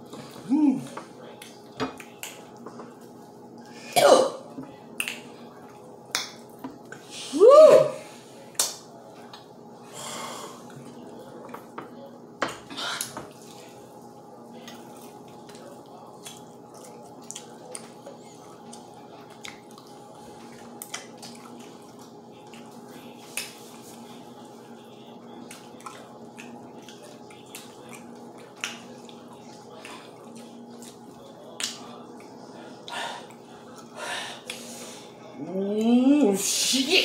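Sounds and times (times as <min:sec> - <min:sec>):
faint steady hum: 0:00.0 - 0:37.0
crunching and chewing fried chicken: 0:13.3 - 0:34.6.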